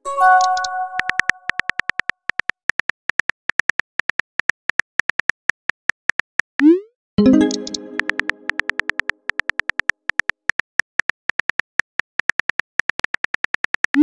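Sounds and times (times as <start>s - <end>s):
keyboard tap clicks: 0.4s - 1.9s, 7.2s - 9.1s.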